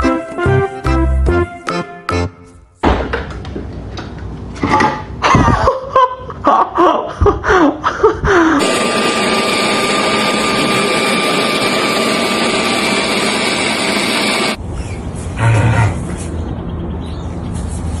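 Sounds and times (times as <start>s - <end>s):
leaf blower running: 8.6s - 14.6s.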